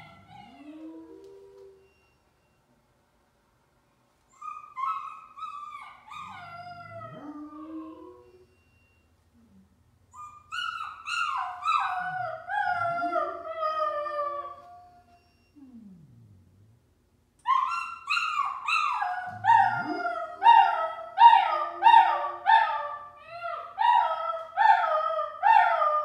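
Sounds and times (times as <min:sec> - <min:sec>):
dog howling: 0:00.0 - 0:01.9, 0:06.1 - 0:08.4, 0:11.2 - 0:14.8, 0:17.5 - 0:26.0
puppy whining: 0:00.0 - 0:02.2, 0:04.3 - 0:16.4, 0:17.4 - 0:26.0.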